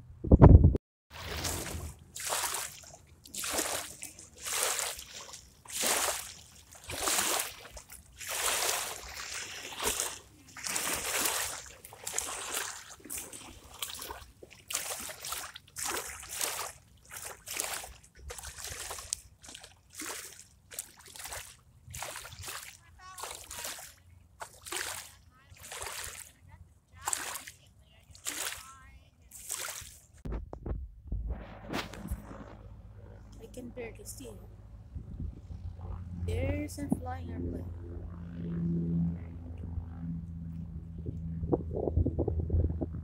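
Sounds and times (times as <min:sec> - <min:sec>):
lake waves lapping against bank: 0:01.1 - 0:30.4.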